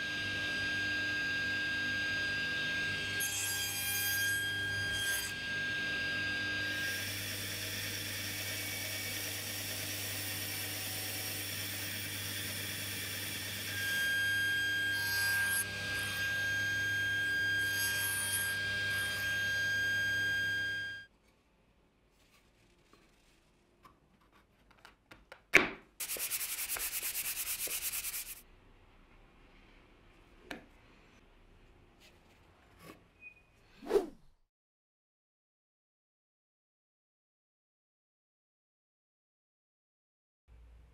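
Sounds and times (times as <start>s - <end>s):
bandsaw cutting wood: 6.8s - 20.7s
fast rubbing on wooden board: 26.0s - 28.4s.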